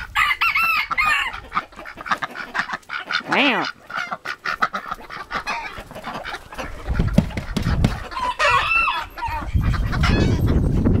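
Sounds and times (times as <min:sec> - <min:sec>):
chickens clucking: 0:00.0 - 0:11.0
rooster crowing: 0:00.1 - 0:01.3, 0:08.1 - 0:09.5.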